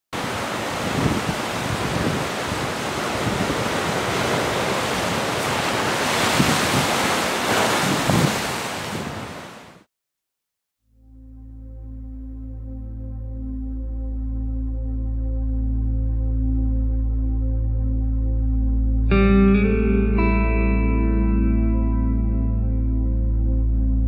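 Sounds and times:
ocean waves breaking: 0.2 - 9.9.

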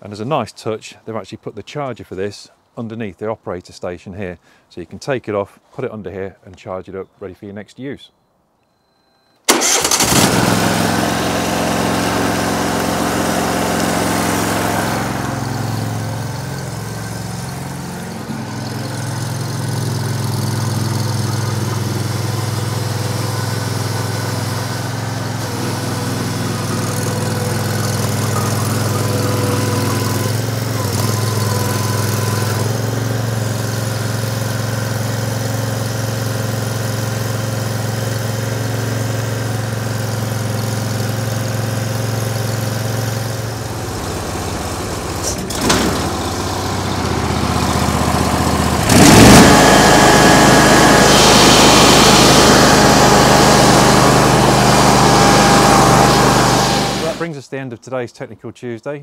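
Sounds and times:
stump grinder engine running: 9.5 - 57.2
cutter wheel spinning: 10.0 - 33.4, 43.3 - 57.2.

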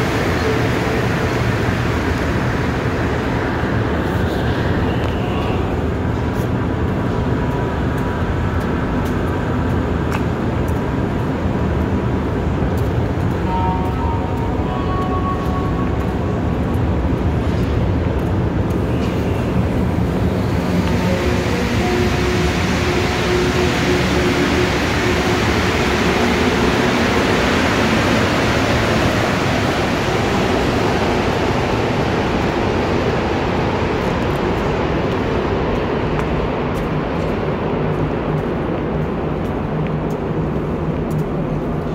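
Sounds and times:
metro train rumble: 0.0 - 41.9.

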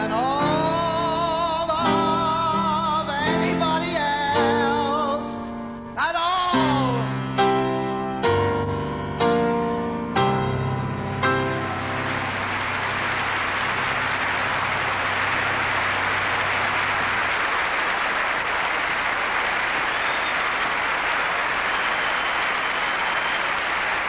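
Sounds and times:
audience applauding: 10.6 - 24.0.

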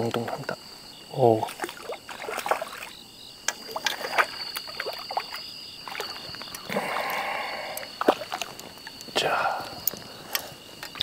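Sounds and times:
insects trilling: 0.0 - 11.0
water splashing and sloshing: 1.3 - 9.2.

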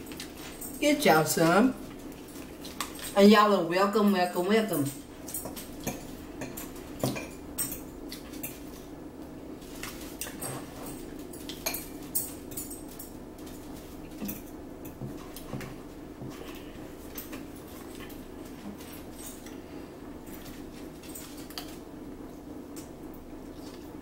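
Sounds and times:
forks clinking against salad bowls: 4.0 - 8.9, 9.8 - 13.6, 14.2 - 15.5.

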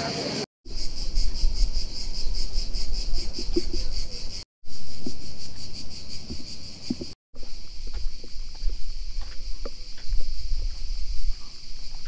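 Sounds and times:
cicadas buzzing: 0.3 - 12.0
footsteps on wooden planks: 5.0 - 12.0.

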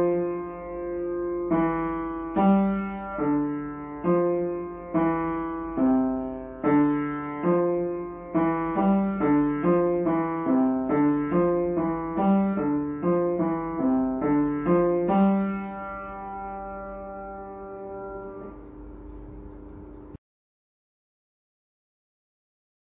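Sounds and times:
piano notes and chords: 0.0 - 20.2.

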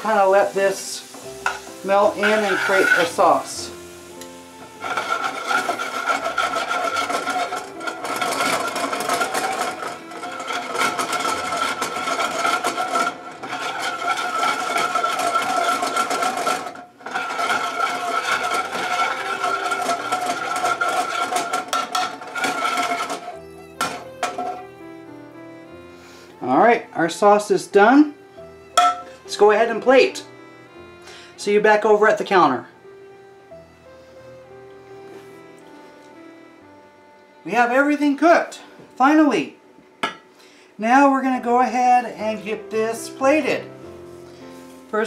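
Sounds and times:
metal tongs scraping a skillet: 0.0 - 24.7, 28.7 - 30.0.

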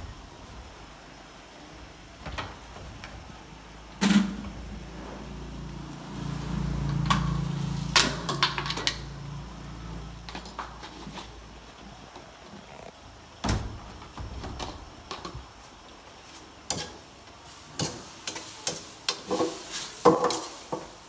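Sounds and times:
low steady hum: 0.0 - 16.1.

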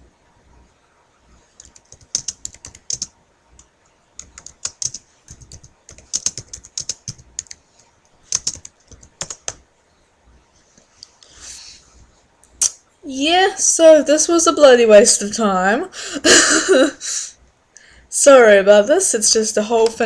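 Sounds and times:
keyboard typing: 1.5 - 9.6.

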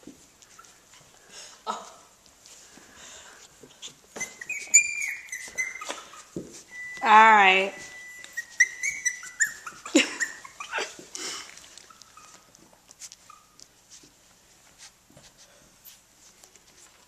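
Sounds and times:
faint scuffling: 0.0 - 7.1, 7.7 - 17.0
puppies yelping and whining: 3.8 - 7.2, 7.8 - 13.7.

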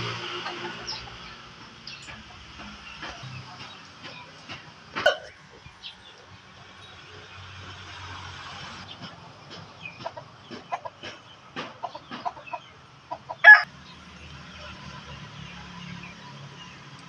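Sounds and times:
rooster clucking: 0.0 - 6.7, 8.9 - 13.7
rooster squawk: 13.2 - 13.7.

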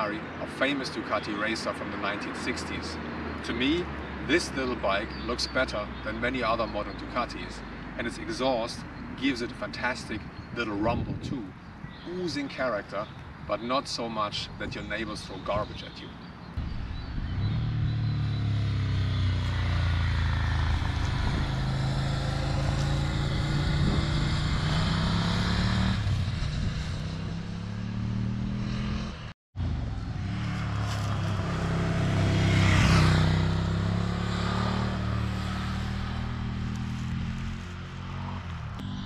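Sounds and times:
motorcycle riding past: 16.6 - 39.0.

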